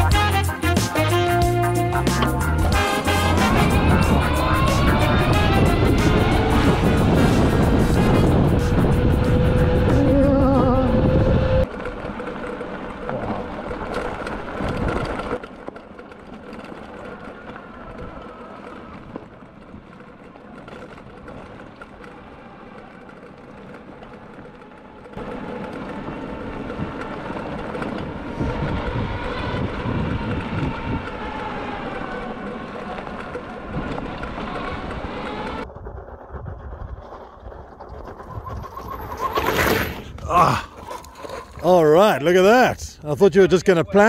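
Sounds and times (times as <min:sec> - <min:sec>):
tyre and wind noise: 0:01.4 - 0:44.0
electric motorbike motor whine: 0:02.4 - 0:35.9.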